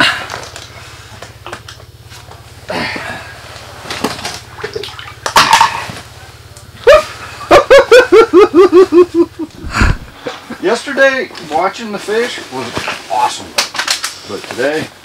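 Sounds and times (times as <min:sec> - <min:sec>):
man laughing hard: 0:06.8 - 0:10.6
breathy burst: 0:09.6 - 0:10.5
soft rustling: 0:11.2 - 0:13.4.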